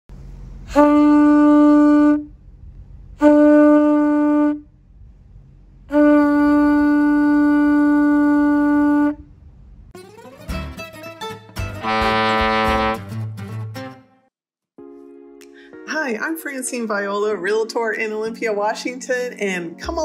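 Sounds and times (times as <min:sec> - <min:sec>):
music with rising sweep: 0:11.7 - 0:13.2
conch shell trumpet blasts: 0:11.8 - 0:13.0.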